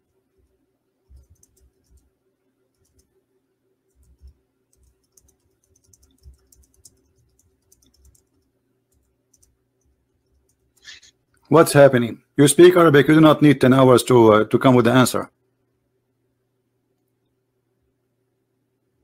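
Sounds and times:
low steady hum: 0.0s - 19.0s
typing on computer keyboard: 1.1s - 2.1s, 2.7s - 3.1s, 3.9s - 10.9s.

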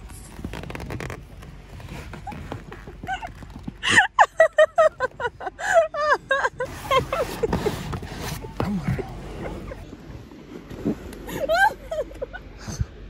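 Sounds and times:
person laughing: 3.0s - 7.8s, 11.3s - 12.5s.

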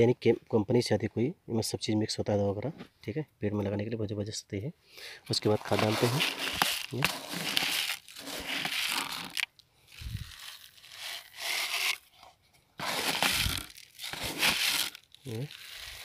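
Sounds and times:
plastic bottle crinkling: 5.3s - 16.0s
granules pouring and rattling: 5.6s - 12.0s, 12.8s - 16.0s.

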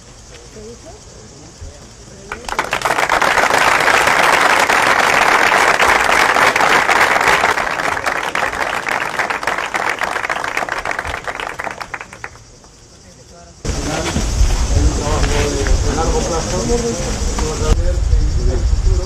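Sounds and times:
group of people applauding: 2.3s - 12.6s.

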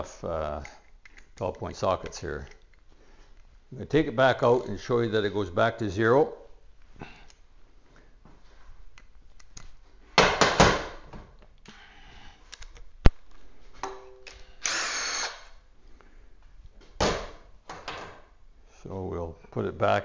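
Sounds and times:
handheld power tool running: 14.6s - 15.5s.

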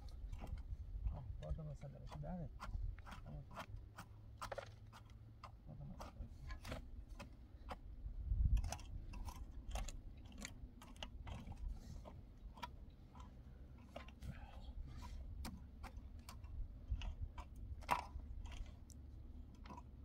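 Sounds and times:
pickaxe striking stony soil: 2.1s - 7.9s.

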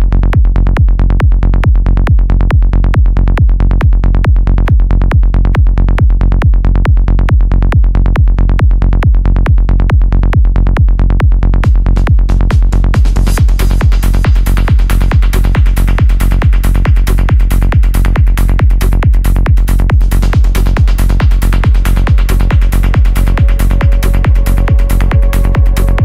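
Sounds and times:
electronic dance music: 19.9s - 26.0s.

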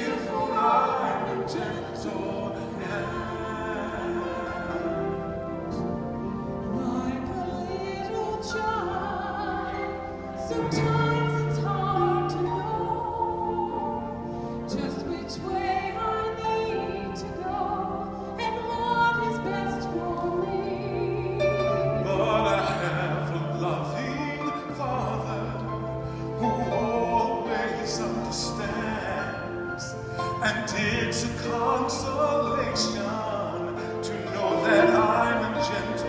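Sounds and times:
held accompaniment notes: 0.0s - 36.0s
woman singing: 6.7s - 14.1s, 14.7s - 24.9s.

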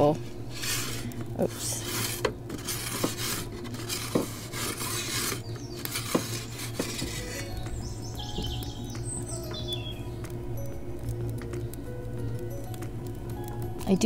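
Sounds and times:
metal peel scraping on stone: 0.0s - 7.6s.

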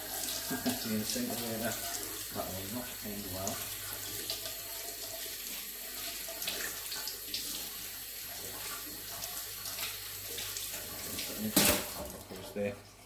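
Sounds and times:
tap water splashing into sink: 0.0s - 12.8s.

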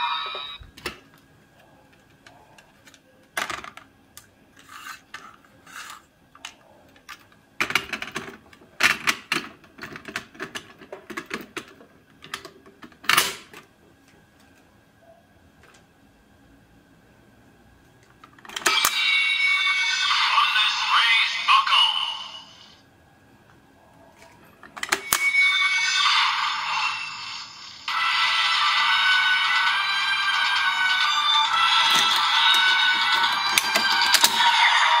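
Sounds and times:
plastic toy parts clattering: 2.8s - 3.9s, 4.6s - 13.6s, 24.2s - 25.2s, 31.8s - 34.5s.

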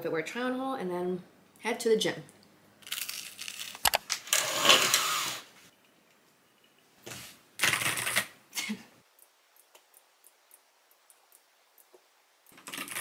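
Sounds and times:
laptop keyboard typing: 7.6s - 8.3s, 12.5s - 13.0s.

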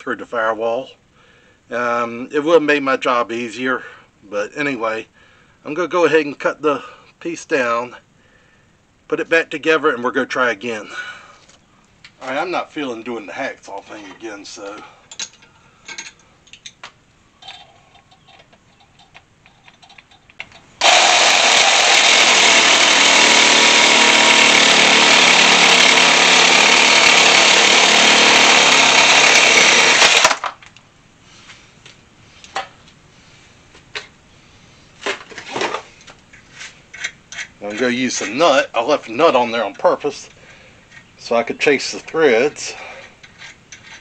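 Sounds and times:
power tool cutting steel rod: 20.8s - 30.4s.

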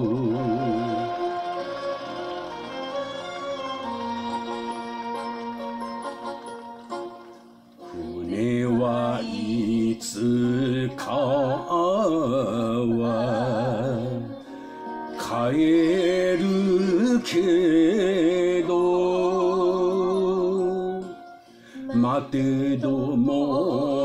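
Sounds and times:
person singing with heavy vibrato: 0.0s - 1.8s, 7.8s - 24.0s
band accompaniment: 0.0s - 9.1s.

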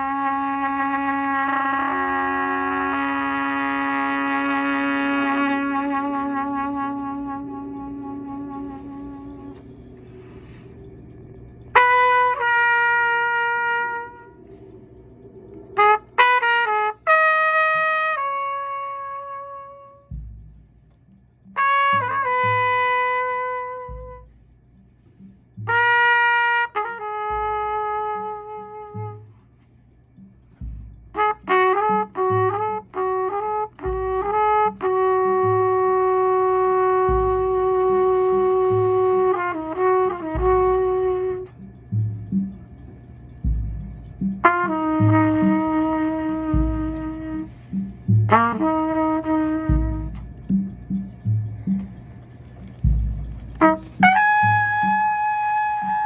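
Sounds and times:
trumpet playing: 0.0s - 20.5s, 21.4s - 24.9s, 25.5s - 30.3s, 31.1s - 56.0s
soft low thumps: 19.2s - 26.3s, 27.2s - 34.4s, 36.8s - 39.2s, 40.3s - 55.2s.

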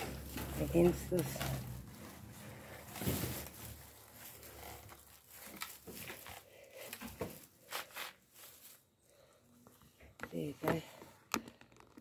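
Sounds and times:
cloth rustling: 0.0s - 9.0s.

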